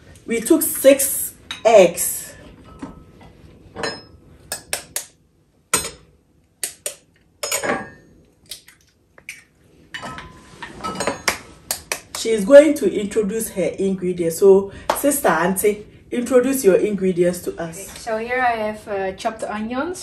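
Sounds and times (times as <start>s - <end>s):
kitchen bowls and utensils clinking: 0.5s - 5.1s, 5.7s - 8.7s, 9.3s - 12.3s.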